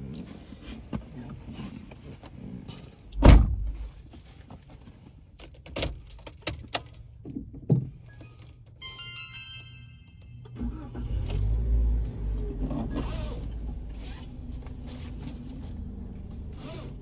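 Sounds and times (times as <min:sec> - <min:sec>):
heavy thud: 0:03.2 - 0:03.8
keys jangling: 0:05.4 - 0:07.2.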